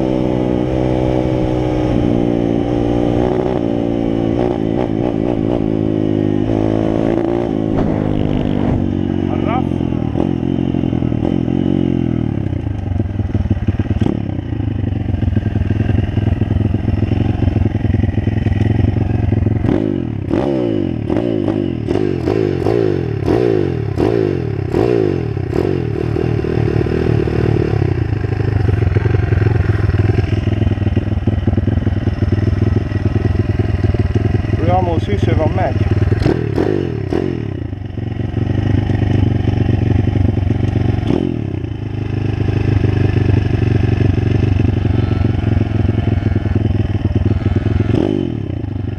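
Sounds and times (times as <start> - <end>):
pit bike engine revving: 0.0 - 48.9.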